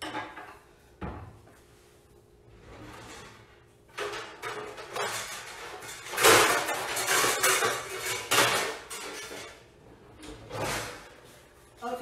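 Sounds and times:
metal baking pans clattering: 2.9 - 11.2.

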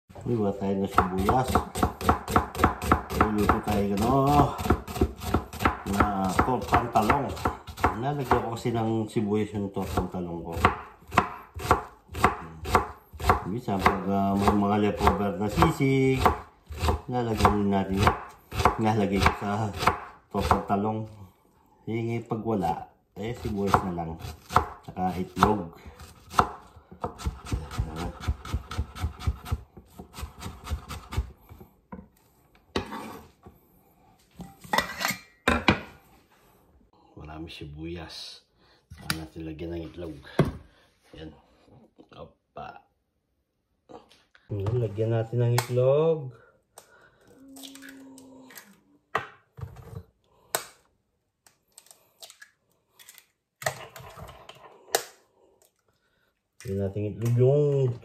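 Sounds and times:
knife chopping on wooden board: 0.9 - 8.5, 9.8 - 20.7, 23.6 - 32.0.

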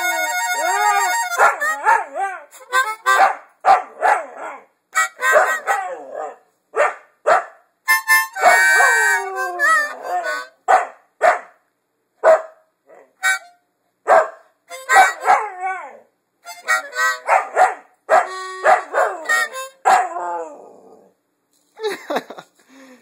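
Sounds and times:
harmonica playing: 0.0 - 3.3, 5.0 - 5.8, 7.9 - 10.6, 13.2 - 13.6, 14.7 - 15.3, 16.4 - 17.4, 18.2 - 19.8
dog howling and barking: 1.4 - 2.6, 3.2 - 4.7, 5.3 - 6.4, 8.4 - 10.8, 15.0 - 16.1, 17.2 - 21.2.

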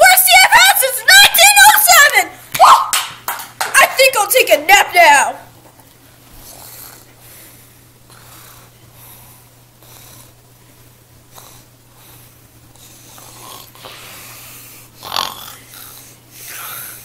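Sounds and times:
loud snort: 6.4 - 7.1, 13.1 - 17.0
girl pretend snoring: 13.1 - 14.4, 15.0 - 17.0.

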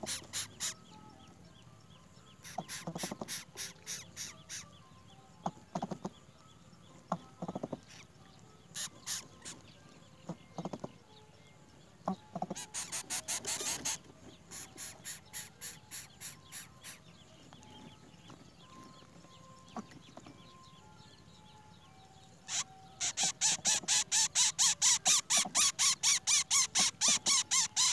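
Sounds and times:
raspy high bird calls: 0.0 - 1.0, 2.4 - 4.8, 7.1 - 8.1, 8.7 - 10.9, 12.0 - 17.1, 22.4 - 27.9.

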